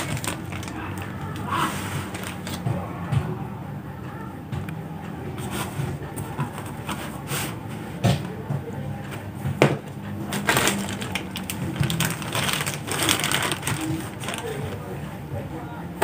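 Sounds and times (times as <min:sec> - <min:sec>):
placemat rustling: 0:00.0 - 0:02.6, 0:10.3 - 0:14.9
plastic bag crinkling: 0:00.0 - 0:02.7, 0:10.3 - 0:14.9.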